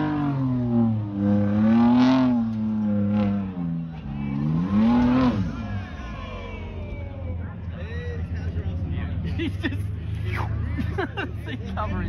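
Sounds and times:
truck engine revving hard: 0.0 - 6.4.

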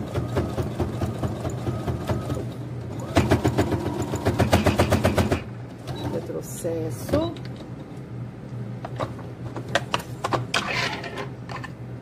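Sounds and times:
sewing machine motor hum: 0.0 - 5.3.

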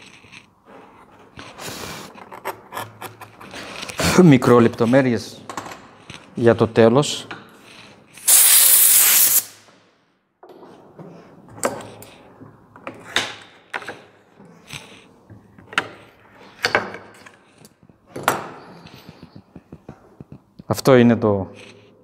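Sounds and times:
carving tool scraping wood: 0.0 - 5.0, 7.6 - 8.2, 13.9 - 16.6, 21.6 - 21.9
loud hissing noise: 8.2 - 9.7.

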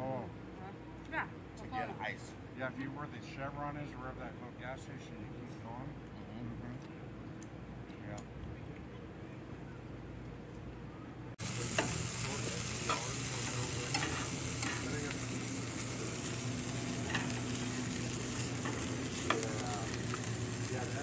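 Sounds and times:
vegetables sizzling in a frying pan: 11.4 - 21.0
spatula stirring and scraping pan: 13.9 - 14.9.

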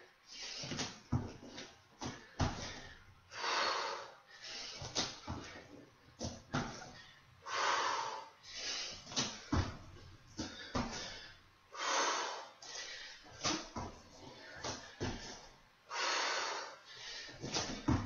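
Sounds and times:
woman breathing heavily: 0.0 - 18.0
hands and feet thumping on mat: 0.6 - 3.0, 4.8 - 7.0, 9.0 - 11.2, 13.3 - 15.5, 17.4 - 18.0.

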